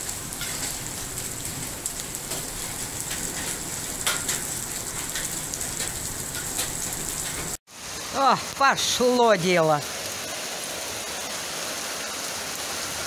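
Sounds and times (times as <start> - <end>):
raindrops striking: 0.0 - 7.6
heavy rain pouring: 0.0 - 13.0.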